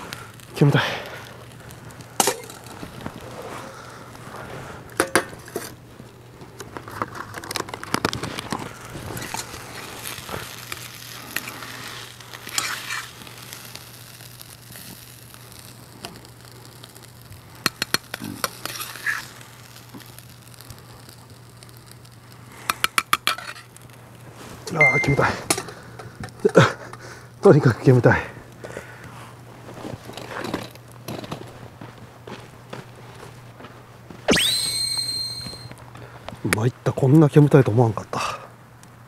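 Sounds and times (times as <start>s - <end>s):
hot pan sizzling: 0.0s - 37.0s
wood fire crackling: 0.0s - 39.0s
sharp metal clinks: 24.8s - 25.3s.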